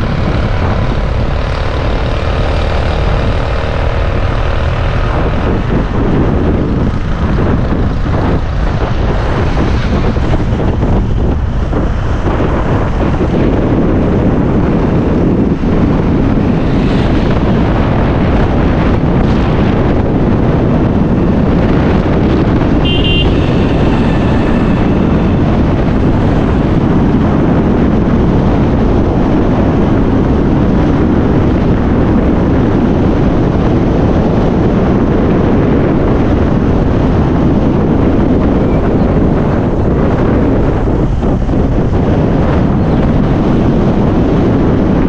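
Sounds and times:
vehicle road noise: 0:00.0 - 0:45.0
wind buffeting microphone: 0:00.0 - 0:45.0
brief high tone: 0:22.8 - 0:24.4.

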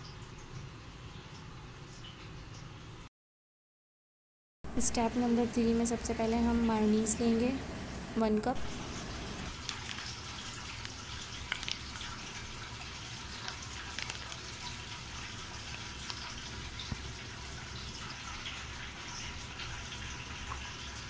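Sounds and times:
steady hiss: 0:07.1 - 0:09.6.

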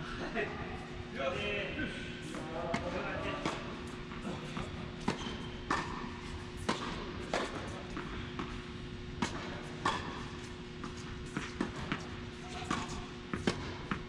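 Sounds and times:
steady low hum: 0:00.0 - 0:14.0
tennis ball struck by rackets: 0:02.7 - 0:08.6, 0:09.2 - 0:14.0.

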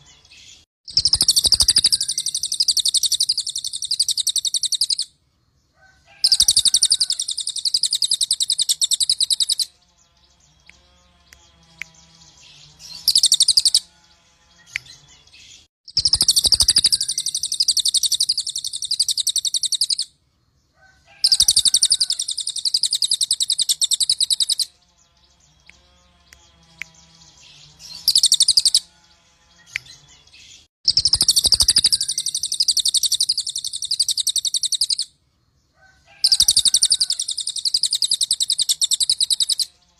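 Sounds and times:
songbird trilling: 0:00.9 - 0:05.0, 0:06.3 - 0:09.7, 0:12.9 - 0:13.8, 0:15.9 - 0:20.0, 0:21.3 - 0:24.7, 0:27.9 - 0:28.8, 0:30.9 - 0:35.1, 0:36.3 - 0:39.7.

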